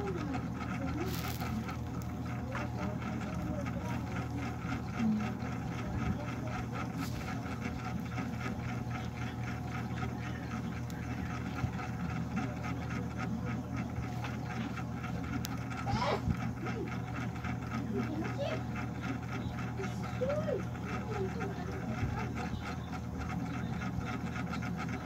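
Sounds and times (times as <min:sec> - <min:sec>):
low mechanical hum with flutter: 0:00.0 - 0:25.0.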